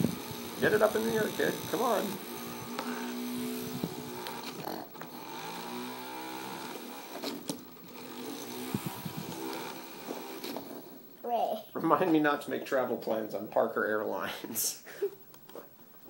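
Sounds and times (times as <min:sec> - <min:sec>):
toy helicopter motors whining: 0:00.0 - 0:10.8.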